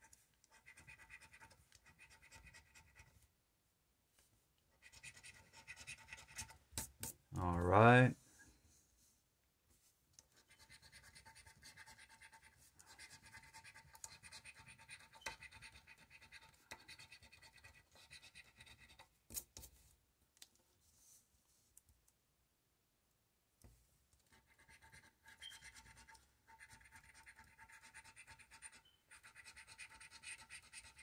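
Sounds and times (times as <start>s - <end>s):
coin scratching lottery ticket: 24.4s - 31.0s.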